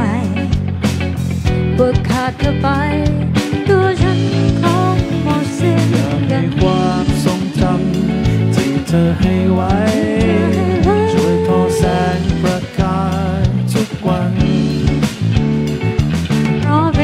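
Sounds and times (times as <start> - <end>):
woman singing: 0.0 - 0.5, 1.7 - 7.6, 9.7 - 13.1, 16.6 - 17.0
live pop band playing: 0.0 - 17.0.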